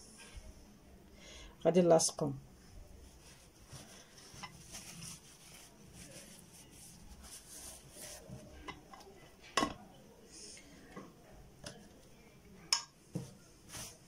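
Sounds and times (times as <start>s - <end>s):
dishes knocking and clinking: 8.6s - 9.8s.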